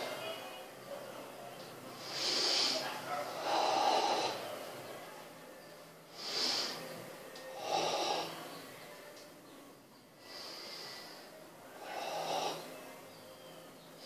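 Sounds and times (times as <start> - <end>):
forceful hissing breaths: 2.0 - 4.5, 6.1 - 7.0, 7.6 - 8.5, 10.2 - 12.8.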